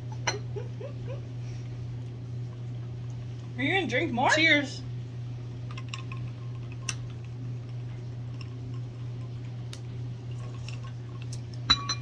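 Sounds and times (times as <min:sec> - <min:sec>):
steady low hum: 0:00.0 - 0:12.0
china teacups clinking: 0:11.7 - 0:12.0.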